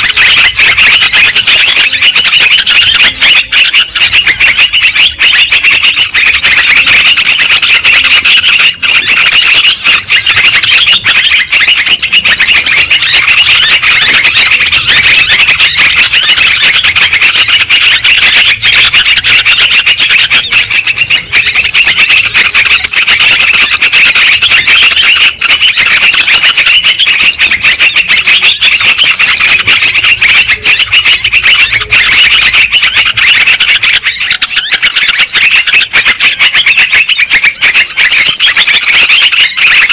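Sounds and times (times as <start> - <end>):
bulbuls chattering: 0.0 - 39.9.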